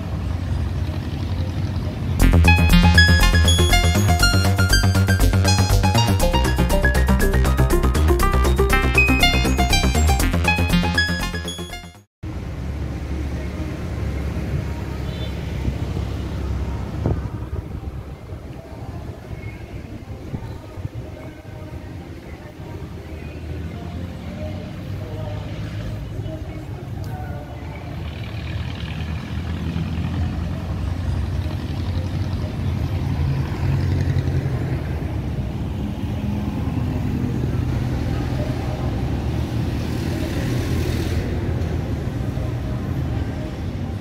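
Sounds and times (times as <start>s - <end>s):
road traffic rumble: 0.0s - 2.3s, 12.2s - 44.0s.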